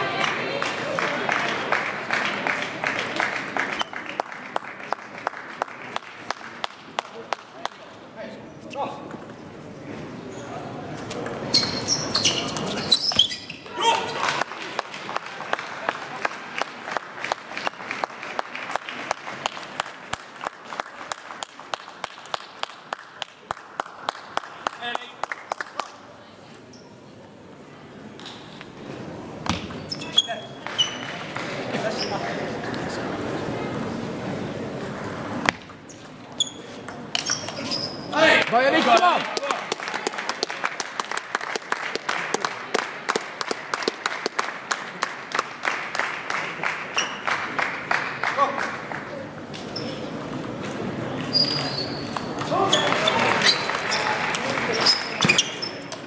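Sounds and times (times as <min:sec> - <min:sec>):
scattered applause: 0:00.0 - 0:07.5, 0:13.8 - 0:26.0, 0:38.2 - 0:49.4, 0:52.5 - 0:55.2.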